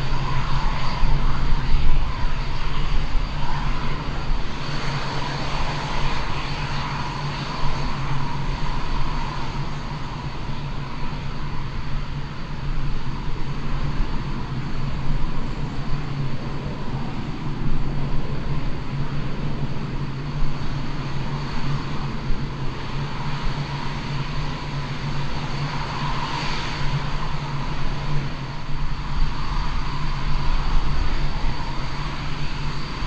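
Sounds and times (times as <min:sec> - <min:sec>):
jet engine whine: 0:00.0 - 0:33.0.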